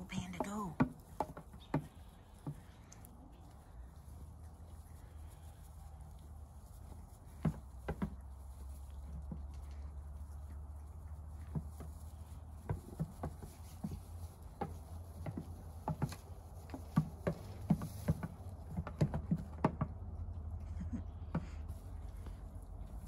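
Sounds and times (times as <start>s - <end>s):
hooves tapping on plastic: 0.1s - 2.7s.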